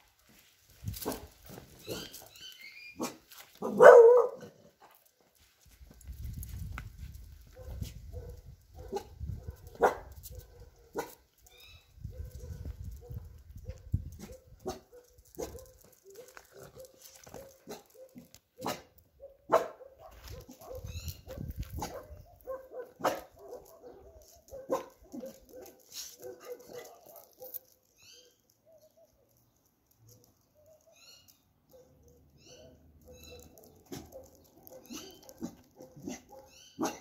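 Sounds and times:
dog barking: 0:03.0 - 0:04.6, 0:07.5 - 0:11.2, 0:12.1 - 0:27.8, 0:31.7 - 0:37.0.

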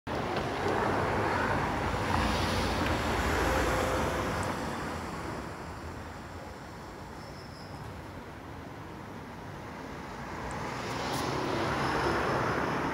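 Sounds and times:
road vehicle passing: 0:00.1 - 0:06.2, 0:09.8 - 0:12.9.

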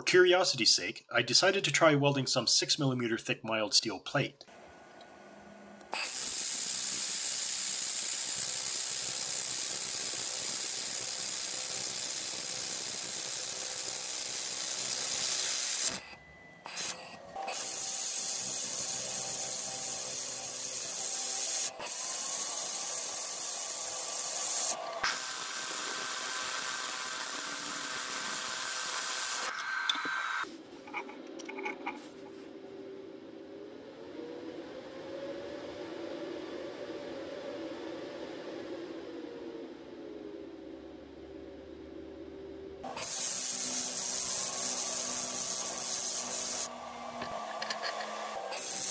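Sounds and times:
laser welder hissing: 0:05.9 - 0:30.5, 0:42.9 - 0:46.7, 0:47.5 - 0:48.9.

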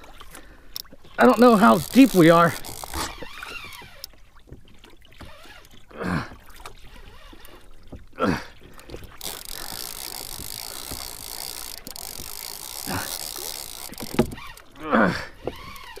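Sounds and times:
fishing reel ticking: 0:00.7 - 0:04.2, 0:09.0 - 0:14.8, 0:15.4 - 0:16.0.

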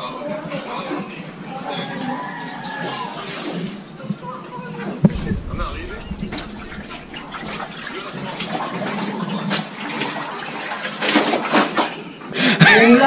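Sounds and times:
water sloshing and splashing: 0:05.1 - 0:09.0.

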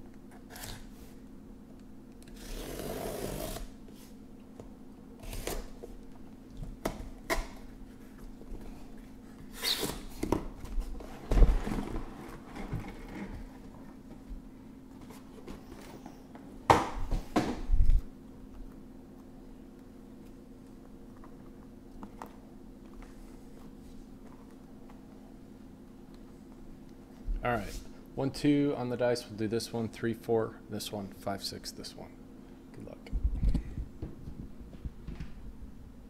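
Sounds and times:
tape slit open: 0:00.4 - 0:00.9, 0:05.2 - 0:05.7, 0:09.5 - 0:10.1.

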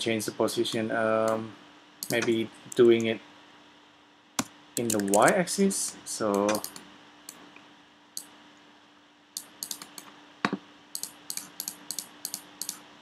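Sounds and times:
faint steady hum: 0:00.0 - 0:13.0
keyboard and mouse clicks: 0:02.0 - 0:03.1, 0:04.4 - 0:05.4, 0:06.3 - 0:07.4, 0:09.4 - 0:10.1, 0:11.0 - 0:12.8.

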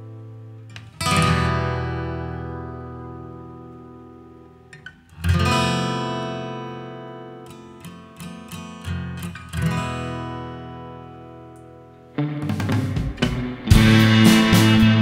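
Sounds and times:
acoustic guitar strummed chords: 0:00.0 - 0:15.0
plucked guitar notes: 0:08.9 - 0:15.0.

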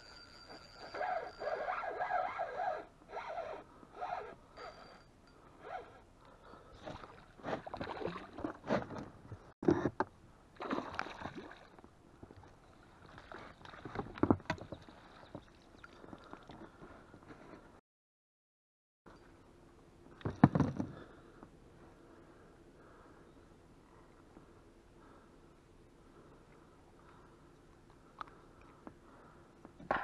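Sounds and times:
water splashing: 0:06.9 - 0:08.6, 0:10.6 - 0:11.8.

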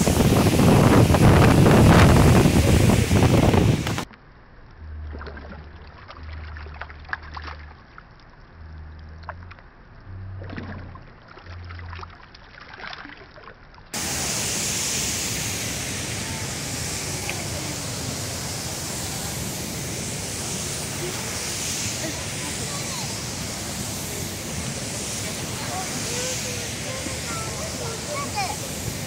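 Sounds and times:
wind on microphone: 0:00.0 - 0:04.1
river water rushing: 0:14.0 - 0:29.0.

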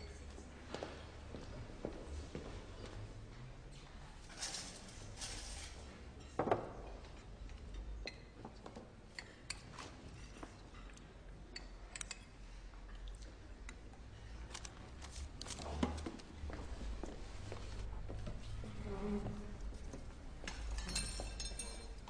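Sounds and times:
spoon clinking against glass dish: 0:20.7 - 0:22.0.

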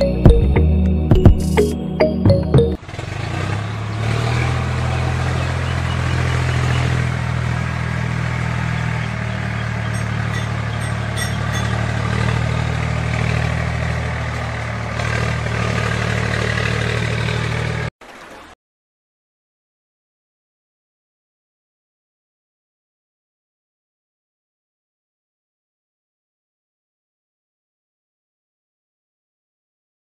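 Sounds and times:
tractor engine rumbling: 0:00.0 - 0:18.6.

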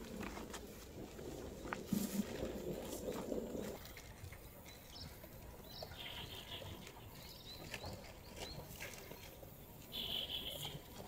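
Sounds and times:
footsteps through grass: 0:00.0 - 0:04.2.

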